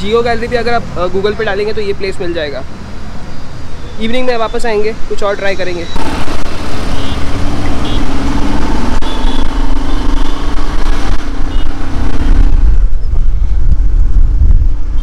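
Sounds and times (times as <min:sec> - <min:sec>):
motorcycle engine running: 0:06.0 - 0:15.0
wind rumble on microphone: 0:08.5 - 0:15.0.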